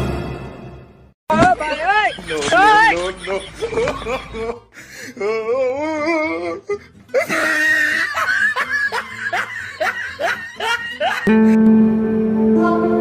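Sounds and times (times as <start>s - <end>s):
comedy laughter: 1.5s - 11.3s.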